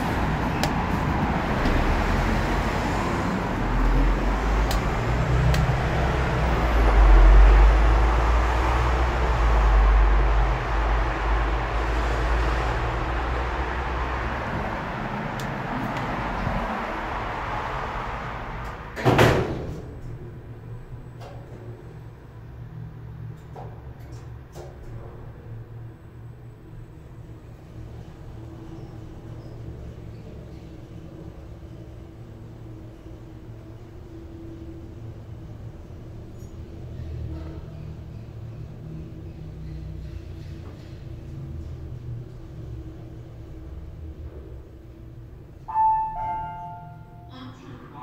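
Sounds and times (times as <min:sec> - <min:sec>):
street traffic rumble: 0:00.0 - 0:48.0
elevator doors shutting thud: 0:18.6 - 0:20.2.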